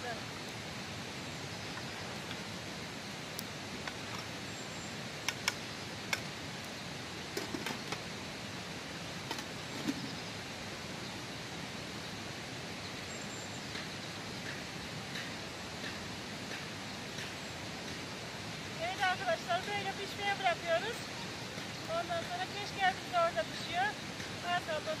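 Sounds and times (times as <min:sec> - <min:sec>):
stream water rushing: 0:14.3 - 0:25.0.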